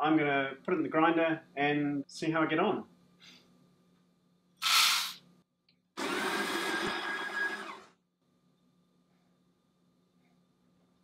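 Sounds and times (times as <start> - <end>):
coffee grinder motor grinding beans: 6.0 - 7.9.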